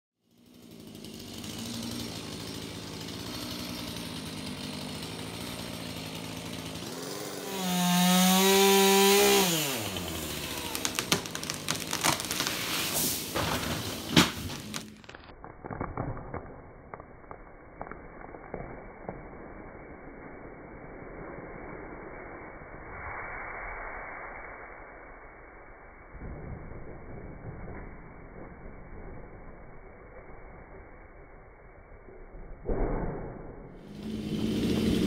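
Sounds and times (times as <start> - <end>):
chainsaw revving: 0.3 - 15.3, 33.9 - 35.0
sharp cracks and knocks: 8.4 - 19.4, 32.4 - 34.0.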